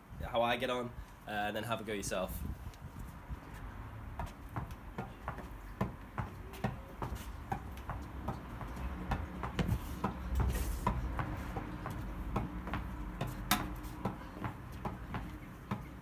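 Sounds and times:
tennis ball hitting racket and wall: 3.4s - 16.0s.

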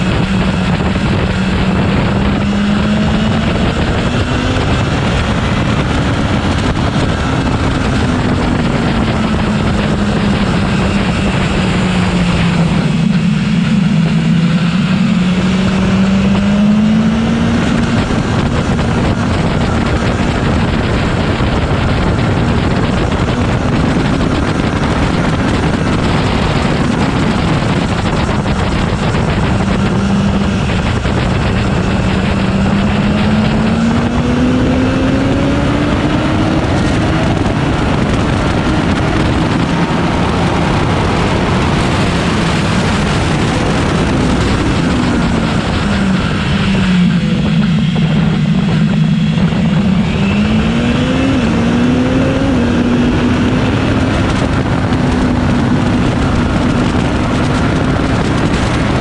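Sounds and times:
motorcycle engine revving: 0.0s - 59.0s
wind rush: 0.0s - 59.0s.

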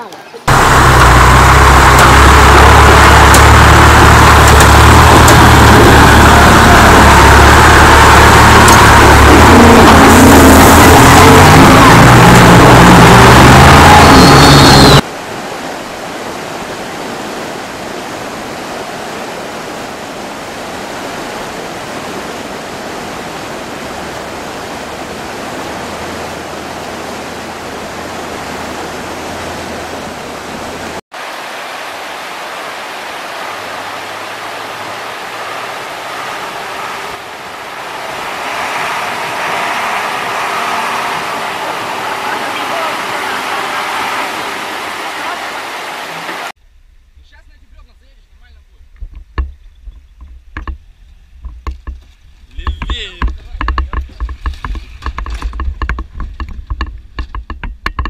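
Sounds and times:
river water rushing over rocks: 0.2s - 46.6s.

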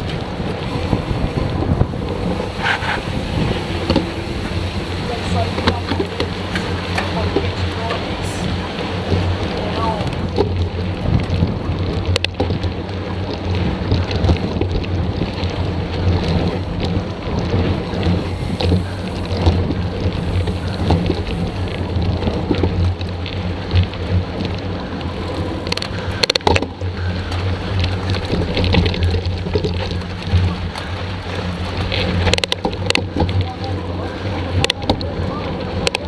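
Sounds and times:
bike rattles: 0.0s - 36.0s
bike tyre rumble on gravel: 0.0s - 36.0s
wind: 0.0s - 36.0s
sharp clicks and knocks: 25.6s - 30.8s.

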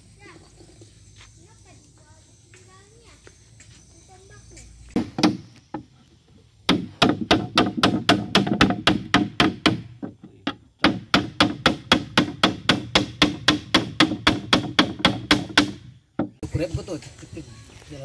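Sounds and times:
hammer striking wooden board: 5.0s - 5.9s, 6.7s - 16.4s.

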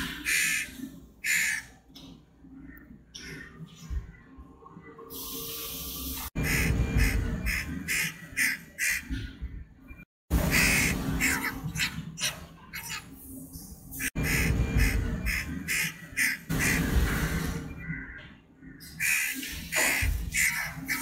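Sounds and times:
crow chick squawking: 0.0s - 1.8s, 6.5s - 9.2s, 10.5s - 13.1s, 17.8s - 21.0s.

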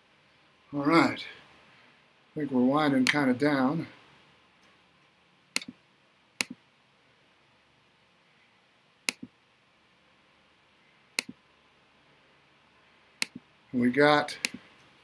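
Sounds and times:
sharp double clicks: 5.6s - 5.8s, 9.1s - 9.3s.

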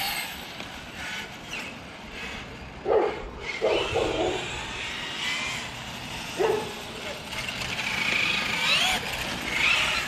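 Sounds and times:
dog barking: 2.9s - 4.4s, 6.4s - 6.8s.

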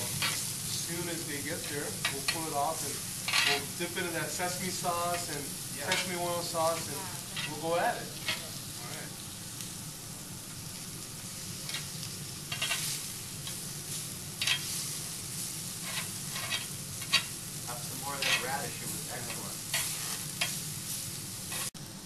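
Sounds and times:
beef sizzling on grill: 0.0s - 22.0s
metal tongs clicking on grill: 0.1s - 0.5s, 1.9s - 2.6s, 3.2s - 3.8s, 5.1s - 8.6s, 11.6s - 13.6s, 14.4s - 17.4s, 18.1s - 21.7s.

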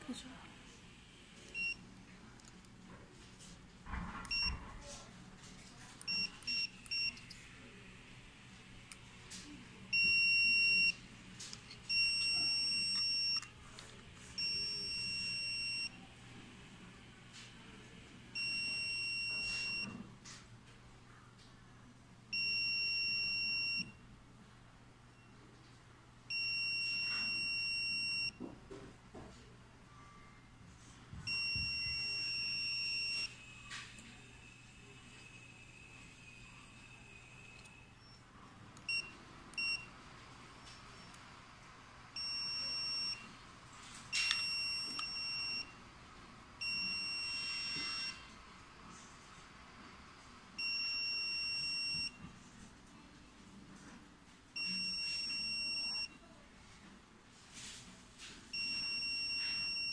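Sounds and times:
electronic collar beeps: 11.9s - 13.4s, 18.4s - 19.9s, 26.3s - 28.3s, 31.3s - 33.4s, 42.2s - 43.3s, 44.2s - 45.7s, 46.6s - 48.3s, 50.6s - 52.2s, 54.6s - 56.2s, 58.6s - 59.9s.

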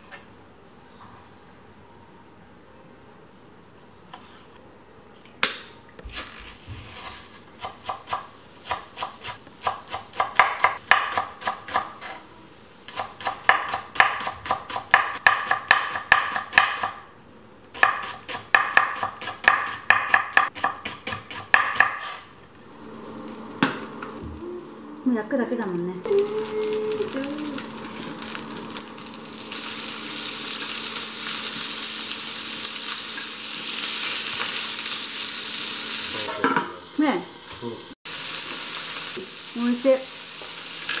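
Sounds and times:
knife chopping on wooden board: 7.6s - 12.2s, 12.9s - 17.0s, 17.8s - 22.2s.

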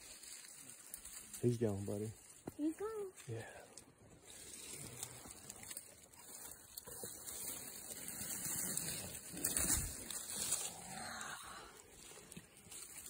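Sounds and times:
twigs and brush rustling: 0.0s - 13.0s
footsteps crunching on dry leaves: 4.2s - 13.0s.

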